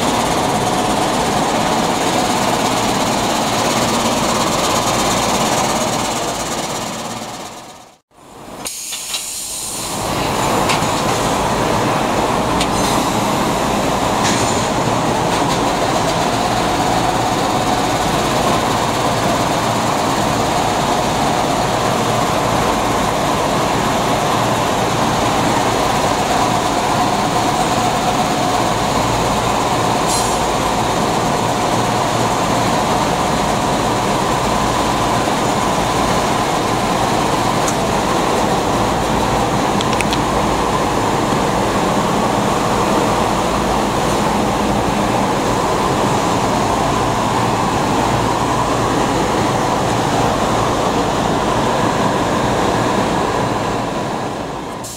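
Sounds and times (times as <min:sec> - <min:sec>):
industrial machinery rumbling: 0:00.0 - 0:08.5.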